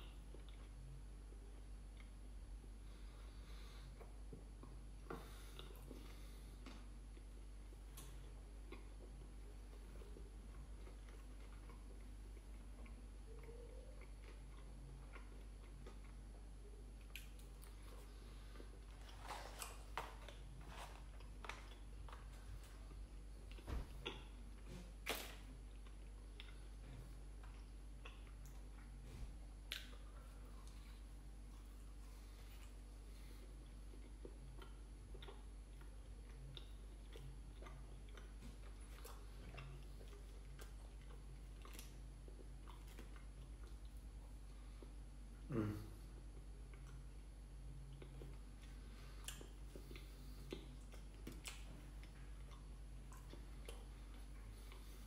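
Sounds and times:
low steady hum: 0.0s - 55.0s
soft chewing smacks and clicks: 0.0s - 55.0s.

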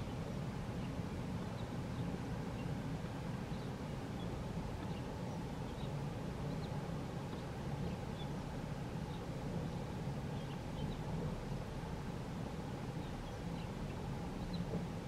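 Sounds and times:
faint bird chirps: 0.0s - 2.8s, 3.4s - 8.4s, 9.0s - 11.2s, 12.9s - 14.8s.

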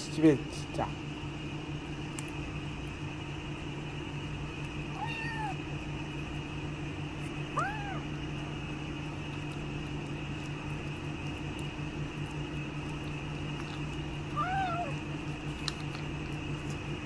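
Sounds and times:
low mechanical hum: 0.0s - 17.0s
cat meowing: 4.9s - 5.6s, 7.5s - 8.2s, 14.3s - 15.0s.

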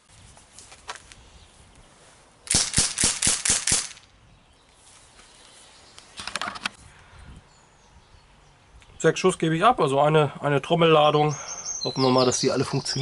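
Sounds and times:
air pistol shots: 2.5s - 4.1s.

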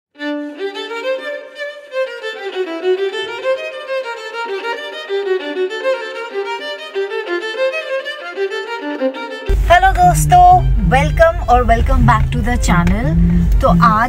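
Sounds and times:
quick melodic background music: 0.2s - 14.0s.

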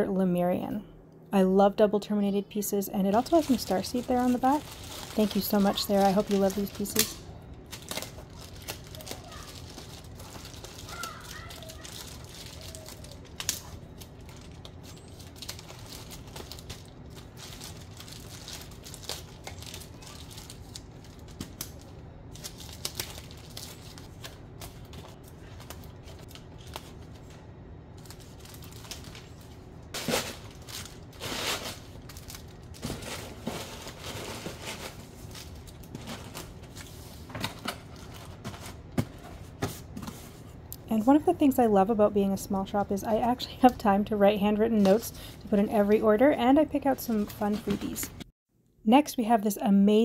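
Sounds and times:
bubble wrap crinkling: 3.1s - 37.3s.

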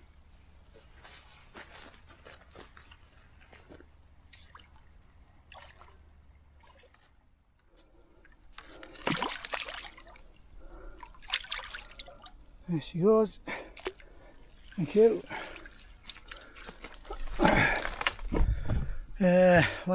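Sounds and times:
fish thrashing and splashing water: 8.7s - 12.4s, 13.7s - 18.3s.

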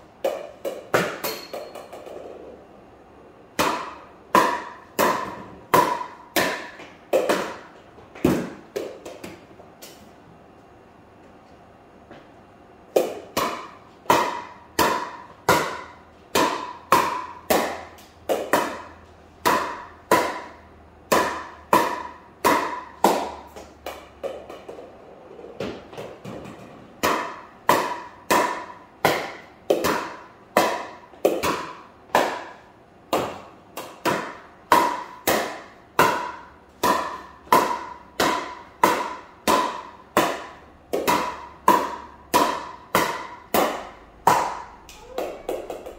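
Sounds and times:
paddle hitting plastic ball: 25.6s - 45.9s.

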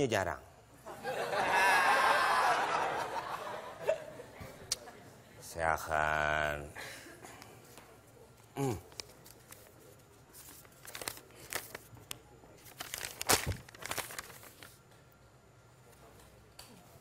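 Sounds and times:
paper crinkling and crackling: 8.9s - 14.8s.

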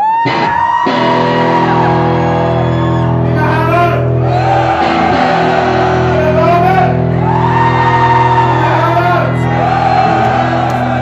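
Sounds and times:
rock band sustained chord: 0.9s - 8.7s.

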